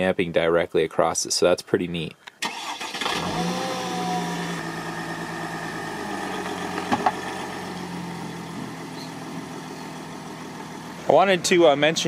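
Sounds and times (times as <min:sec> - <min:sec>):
diesel van engine idling: 0:03.3 - 0:12.0.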